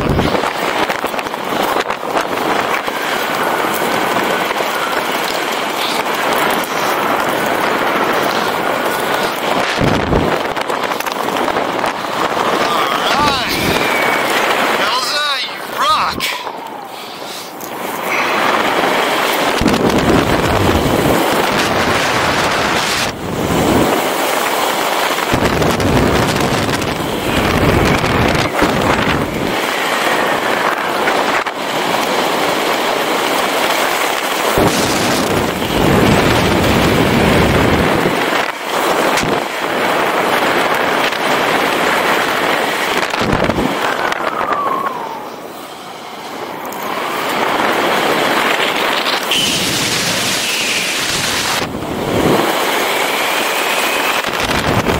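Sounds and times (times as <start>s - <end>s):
wind rushing over microphone: 0.0s - 54.9s.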